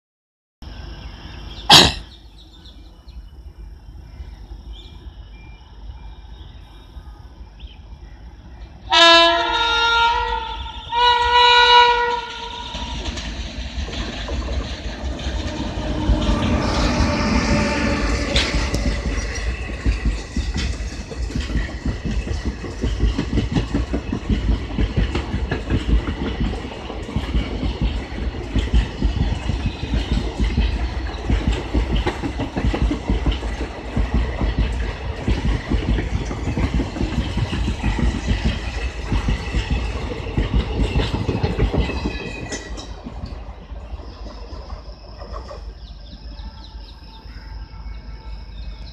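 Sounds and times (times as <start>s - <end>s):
train wheels rumbling and clattering: 0.6s - 48.9s
locomotive horn blasts: 8.9s - 13.0s, 15.5s - 18.8s.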